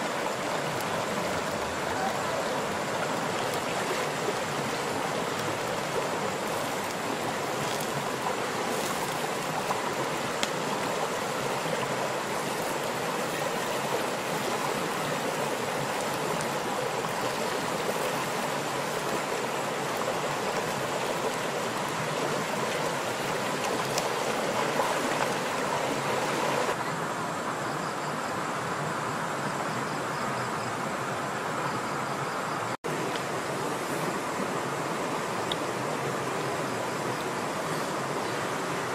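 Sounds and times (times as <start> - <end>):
river rushing over rocks: 0.0 - 27.2.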